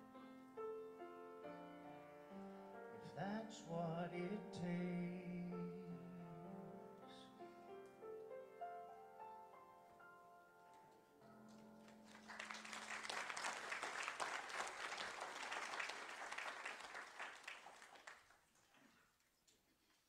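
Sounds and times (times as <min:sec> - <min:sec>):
piano chord ringing: 0:00.0 - 0:11.8
congregation applauding: 0:11.5 - 0:19.4.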